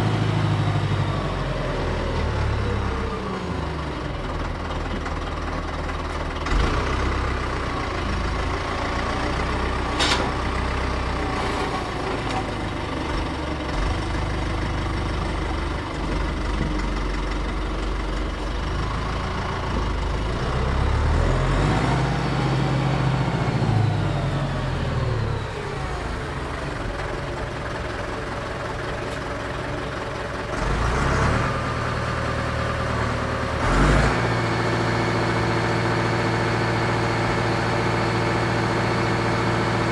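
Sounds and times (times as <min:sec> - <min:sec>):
diesel tractor engine revving: 0:00.0 - 0:39.9
metal clanks: 0:09.9 - 0:10.6.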